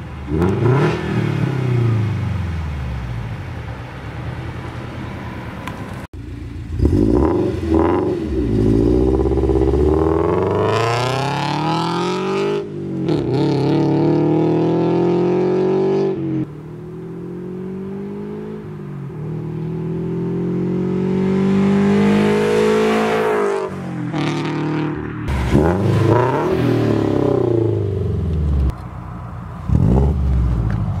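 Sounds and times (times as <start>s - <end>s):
car engine accelerating hard: 6.7s - 16.4s.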